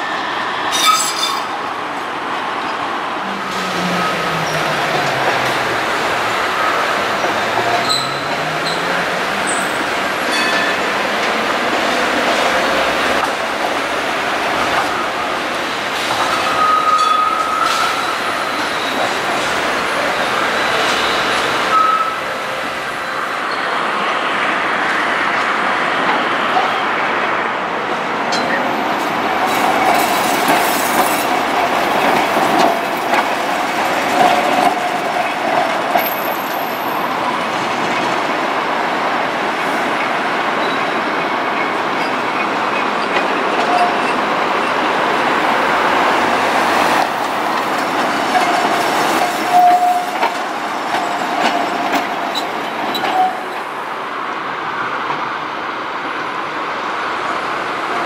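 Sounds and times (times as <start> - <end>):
tram wheels squealing: 0.0 - 1.7, 2.7 - 13.2, 16.1 - 24.2, 28.3 - 38.2, 39.9 - 53.8
tram wheels clattering on rails: 0.0 - 58.0.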